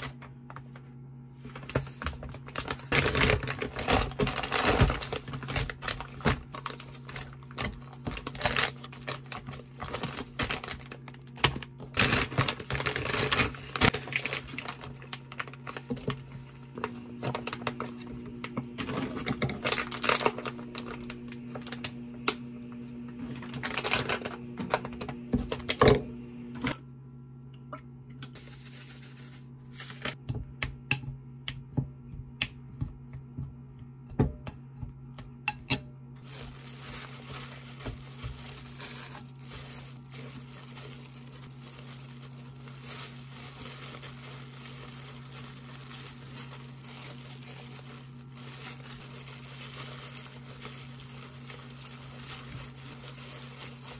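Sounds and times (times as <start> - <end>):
plastic gloves rustling: 0.0 - 25.7, 28.4 - 30.2, 36.2 - 53.9
plastic packet crinkling: 1.6 - 18.1, 18.8 - 22.0, 23.2 - 25.7, 36.2 - 53.9.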